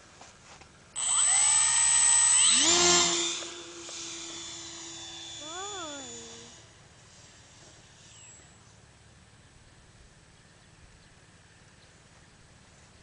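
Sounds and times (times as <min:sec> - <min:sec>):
electric motor whine: 0:01.0 - 0:08.8.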